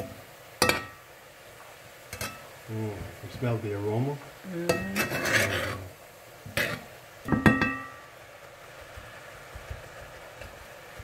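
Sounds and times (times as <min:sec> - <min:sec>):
spoon stirring greens in pot: 0:04.7 - 0:07.9.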